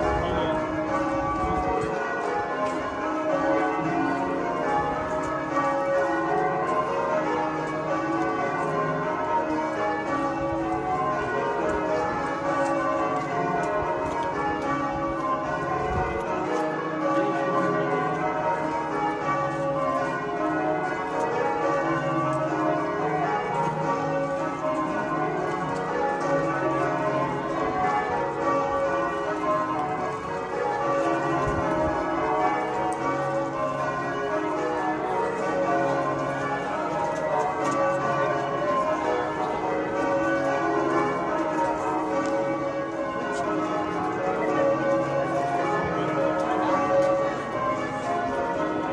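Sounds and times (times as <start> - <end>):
church bells pealing: 0.0 - 48.9.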